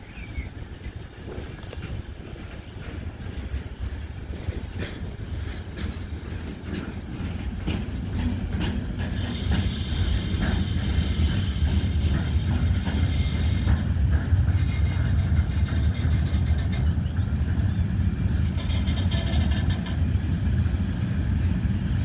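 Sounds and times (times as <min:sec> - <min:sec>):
train wagons rumbling: 0:00.0 - 0:22.0
wheels clacking over rails: 0:00.6 - 0:22.0.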